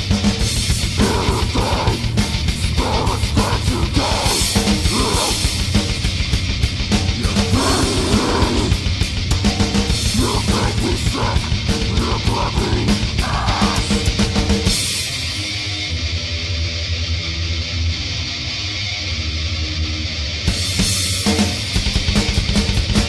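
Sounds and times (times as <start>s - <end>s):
fast dense drumming: 0.0s - 15.3s, 20.6s - 23.0s
heavily distorted guitars: 0.0s - 23.0s.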